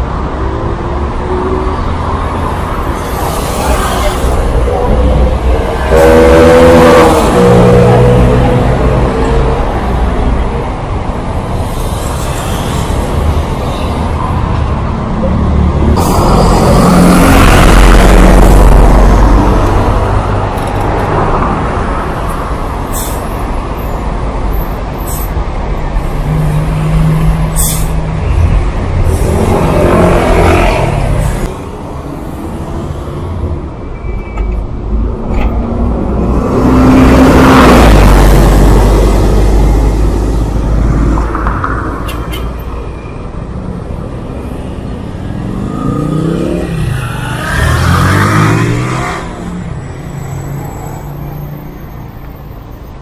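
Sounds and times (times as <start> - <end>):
heavy vehicle rumble: 0.0 - 53.0
traffic engine and tyre noise: 0.0 - 53.0
bus air brake hisses: 27.6 - 28.0.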